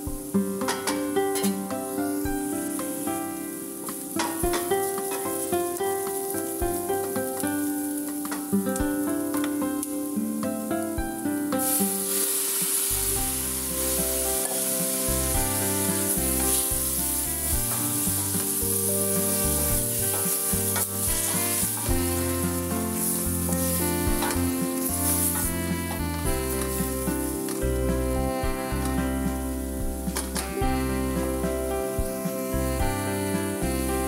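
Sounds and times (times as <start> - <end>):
background music: 0.0 - 34.0
food sizzling in a pan: 0.0 - 34.0
wooden spatula stirring: 11.6 - 30.5.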